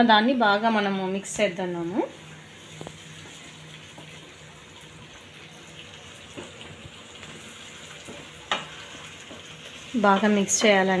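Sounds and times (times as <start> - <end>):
onions sizzling in oil: 0.2 - 11.0.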